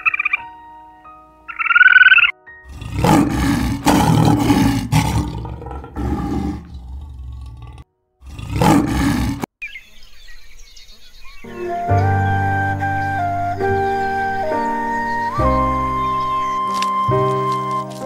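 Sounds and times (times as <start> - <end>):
lion roaring: 2.7 - 9.5.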